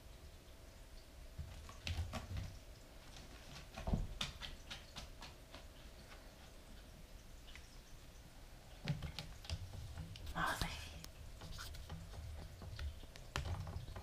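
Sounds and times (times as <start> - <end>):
kitten paws tapping: 1.4 - 6.6.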